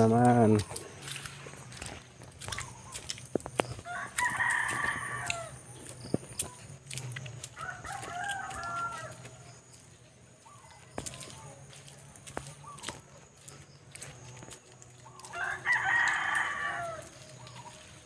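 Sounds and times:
rooster crowing: 0:03.8 - 0:05.6, 0:07.6 - 0:09.5, 0:15.3 - 0:17.2.

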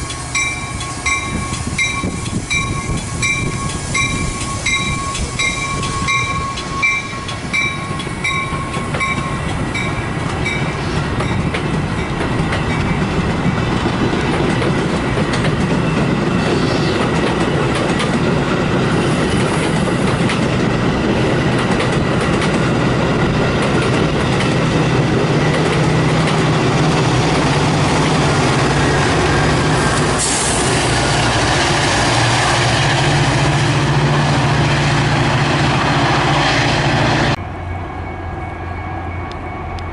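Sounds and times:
crossing bell ringing: 0:00.0 - 0:13.3, 0:37.3 - 0:39.9
train wheels clacking on rails: 0:00.0 - 0:37.4
diesel locomotive drone: 0:00.0 - 0:39.9.

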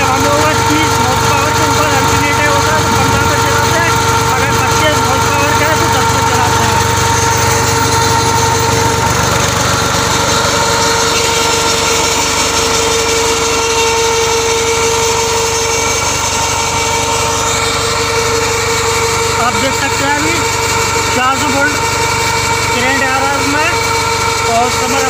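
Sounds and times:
steady tone: 0:00.0 - 0:14.7
tractor diesel engine running: 0:00.0 - 0:25.0.

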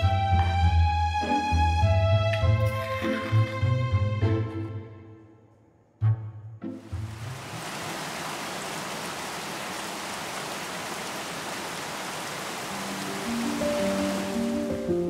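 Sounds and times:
steady rain falling: 0:06.8 - 0:15.0.

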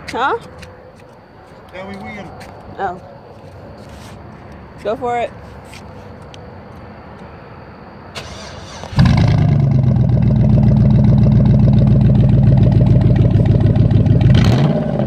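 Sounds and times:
engine idling: 0:08.2 - 0:15.0
engine revving: 0:08.2 - 0:15.0.

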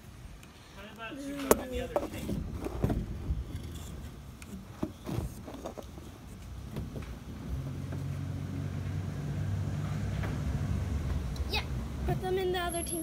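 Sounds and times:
low engine hum: 0:06.6 - 0:12.8.

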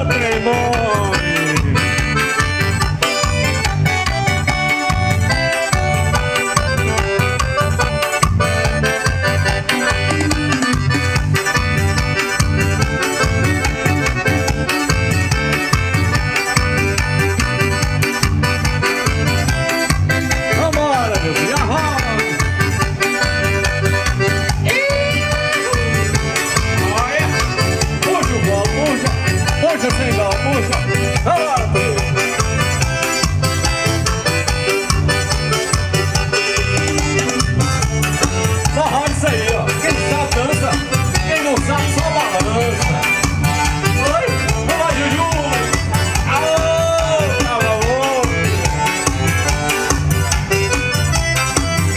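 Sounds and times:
accordion: 0:00.0 - 0:51.9
driving low beat: 0:00.0 - 0:51.9
high percussive strikes: 0:00.6 - 0:51.9.

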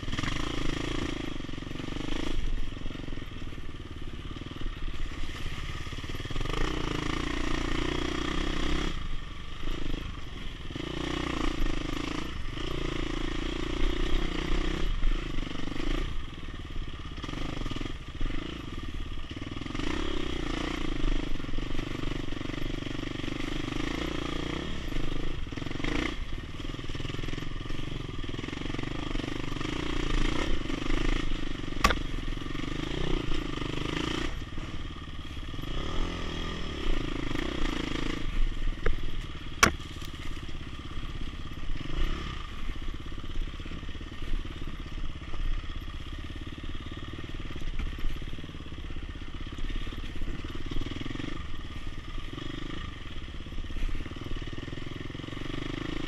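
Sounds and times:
dirt bike engine revving: 0:00.0 - 0:16.2, 0:17.2 - 0:45.1.

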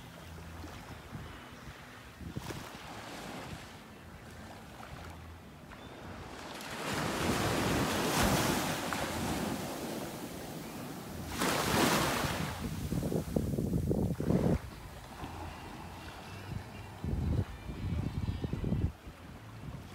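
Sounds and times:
wind buffeting microphone: 0:00.9 - 0:03.7, 0:07.0 - 0:19.9
small waves washing on sand: 0:01.8 - 0:17.0.

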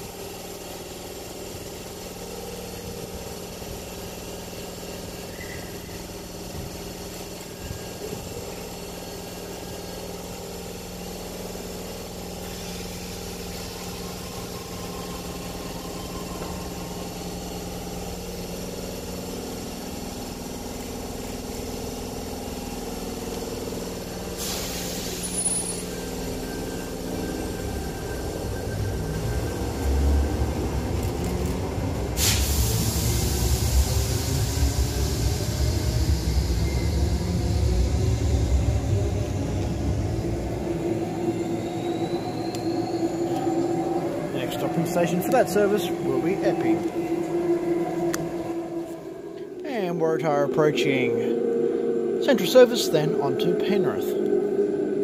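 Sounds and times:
electric train equipment humming: 0:00.0 - 0:55.0.

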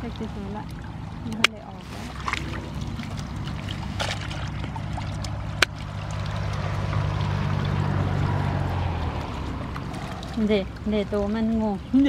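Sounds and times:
water trickling: 0:00.0 - 0:12.0
fish flapping in a net: 0:02.0 - 0:10.4.

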